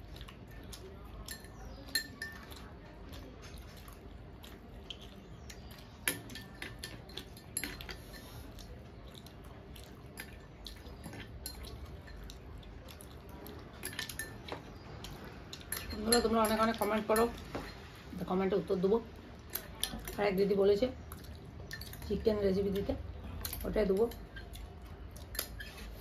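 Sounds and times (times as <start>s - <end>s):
spoon clinking against glass bowl: 1.2s - 2.7s, 6.0s - 8.4s, 11.1s - 12.5s, 13.7s - 14.8s, 15.5s - 17.9s, 21.6s - 22.4s
hands working food on steel plates: 5.4s - 8.9s, 10.1s - 26.0s.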